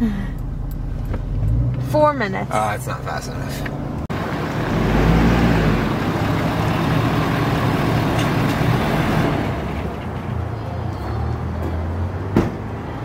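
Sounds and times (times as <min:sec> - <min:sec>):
pickup truck idling: 0:05.6 - 0:10.2.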